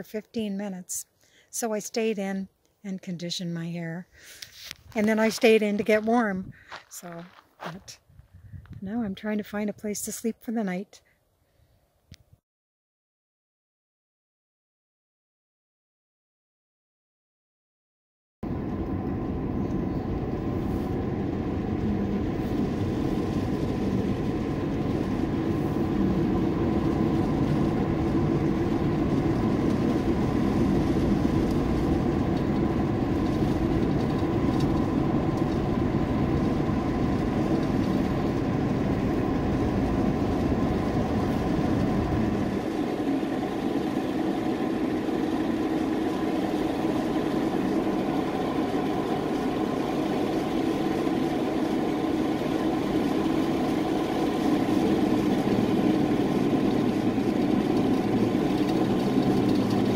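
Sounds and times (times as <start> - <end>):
engine and tyre drone: 18.4 - 59.9
faint steady whine: 18.4 - 59.9.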